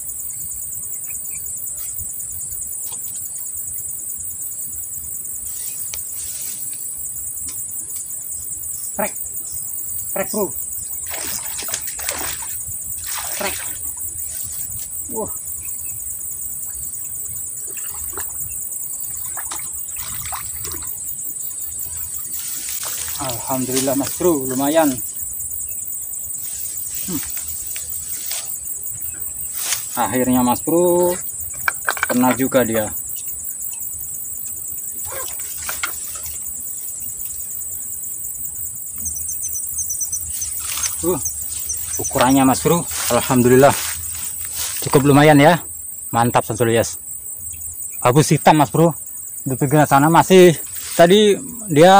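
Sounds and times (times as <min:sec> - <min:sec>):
high-pitched insect chorus: 0:00.0 - 0:51.9
rustles: 0:05.1 - 0:08.6, 0:10.6 - 0:45.7, 0:50.3 - 0:51.6
fish splashing in water: 0:11.0 - 0:13.9, 0:19.2 - 0:21.0.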